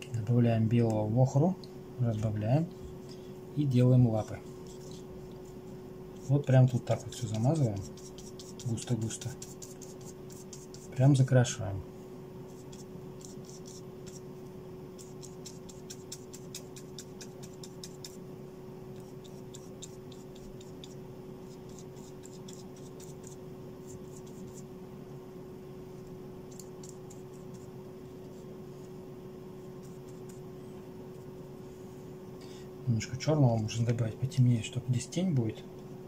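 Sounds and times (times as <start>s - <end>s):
paintbrush scratching on paper: 4.1s - 11.2s, 12.5s - 14.2s, 15.0s - 18.2s, 19.0s - 24.7s, 26.5s - 30.5s.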